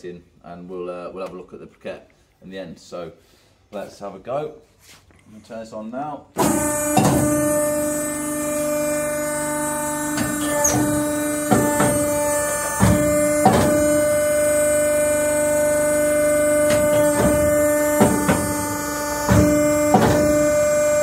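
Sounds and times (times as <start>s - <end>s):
press clunks and knocks: 6.4s - 20.8s
hydraulic press motor hum and whine: 6.4s - 21.0s.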